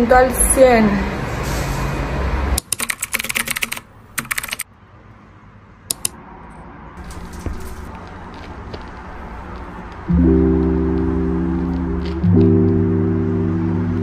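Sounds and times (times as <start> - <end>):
single clicks: 5.9 - 6.2
low hum: 7.0 - 14.0.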